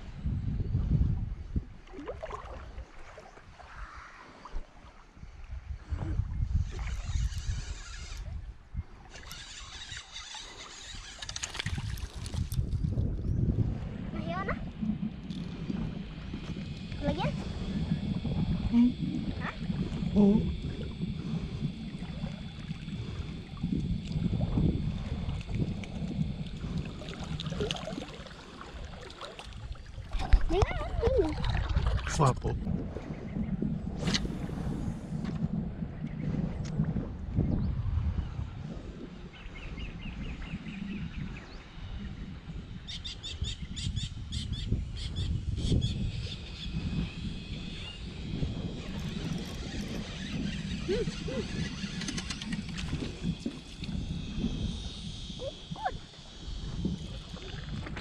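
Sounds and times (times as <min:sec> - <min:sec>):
water rumbling: 0:00.0 - 0:39.3, 0:46.8 - 0:58.0
wind noise on microphone: 0:00.0 - 0:58.0.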